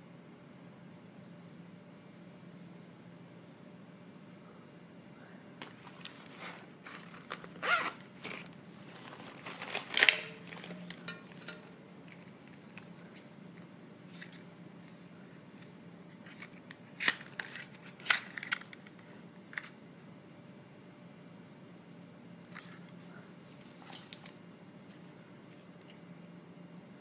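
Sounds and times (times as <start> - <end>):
plastic wrapping crinkling: 5.6 - 13.3, 23.5 - 24.4.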